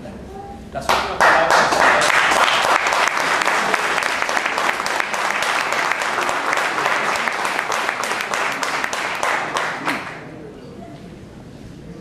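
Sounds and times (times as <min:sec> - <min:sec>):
audience applauding: 0:00.9 - 0:10.3.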